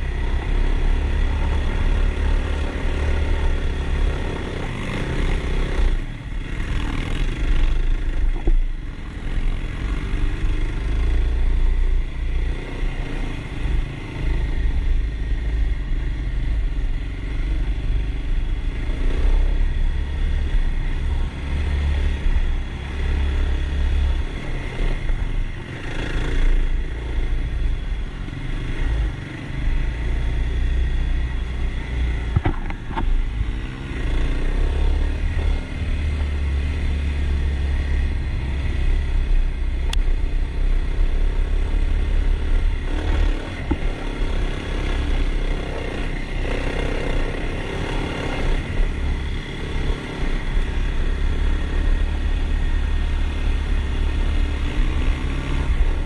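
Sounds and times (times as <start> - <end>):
sharp knocks: 32.3 - 33.0
dirt bike engine revving: 41.2 - 56.0.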